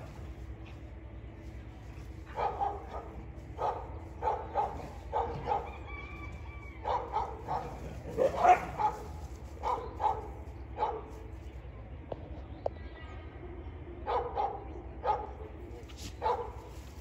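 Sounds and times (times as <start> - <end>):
dogs barking: 1.9 - 11.3, 14.0 - 17.0.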